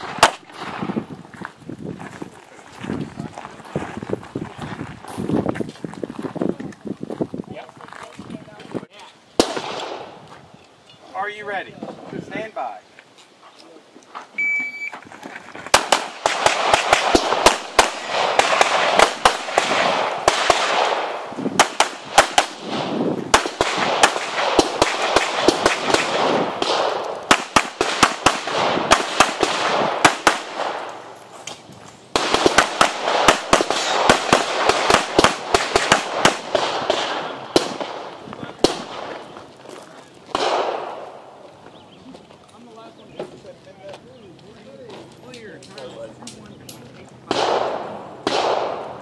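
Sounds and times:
electronic timer beep: 14.4 - 14.9
pistol firing rapid shots: 15.8 - 30.9, 32.2 - 39.1, 40.3 - 41.0, 47.3 - 49.0.

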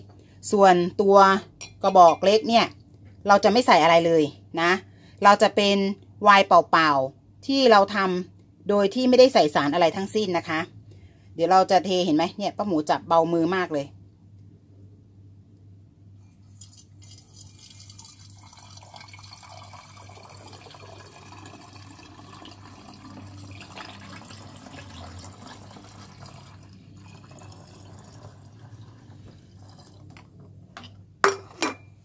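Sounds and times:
liquid pouring into glass bottle: 16.4 - 30.2.

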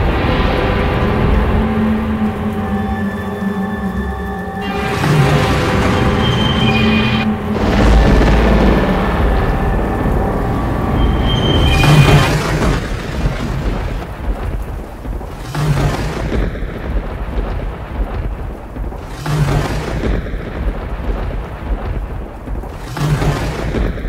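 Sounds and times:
low hum: 0.0 - 23.5
dark ambient drone: 0.0 - 24.0
rumbling and scraping noise: 0.0 - 24.0.

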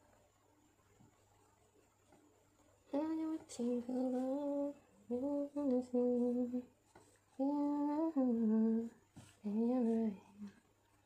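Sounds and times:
person humming a slow tune: 2.9 - 6.7, 7.4 - 10.6.

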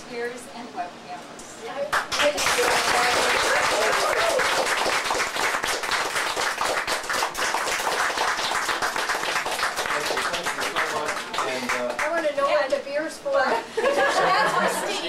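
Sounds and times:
audience applauding: 1.9 - 12.4.

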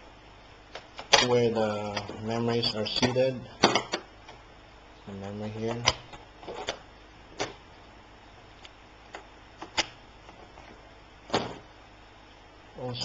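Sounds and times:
laptop parts clicking and knocking: 3.6 - 4.4.

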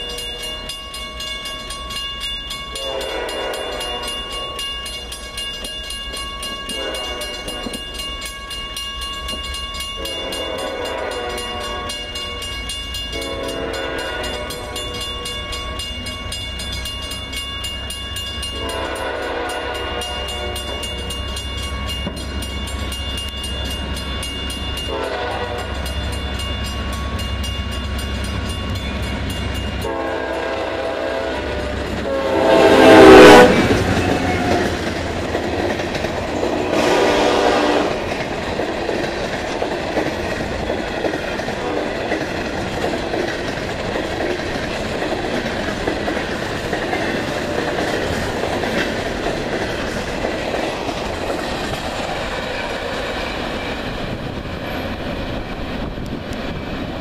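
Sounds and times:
train wheels clattering on rail: 0.0 - 57.0
train horn blasts: 2.7 - 4.7, 6.6 - 8.0, 10.0 - 15.7, 18.4 - 21.4, 24.8 - 26.2, 29.8 - 34.8, 36.4 - 38.1, 41.6 - 42.2.

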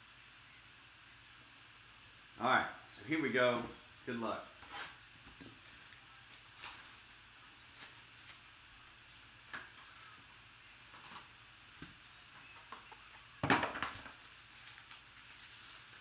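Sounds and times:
foil pack rustle and knock: 5.6 - 8.5, 13.4 - 16.0
plastic shrink wrap crinkling: 5.6 - 8.5, 13.9 - 16.0.

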